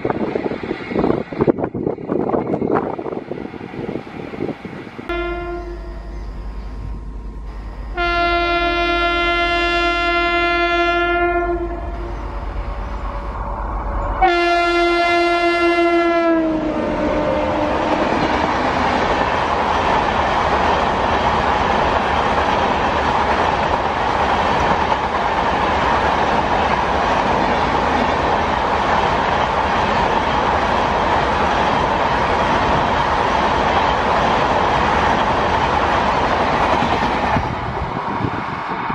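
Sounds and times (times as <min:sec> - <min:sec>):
train passing with rumble: 0:00.0 - 0:38.9
locomotive horn blasts: 0:05.1 - 0:06.8, 0:07.5 - 0:13.4, 0:14.1 - 0:18.1.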